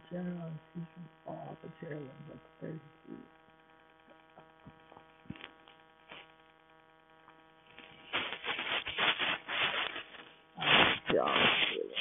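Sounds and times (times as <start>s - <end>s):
faint electrical hum: 0.0s - 12.0s
rustling and rubbing: 5.3s - 6.3s, 7.7s - 12.0s.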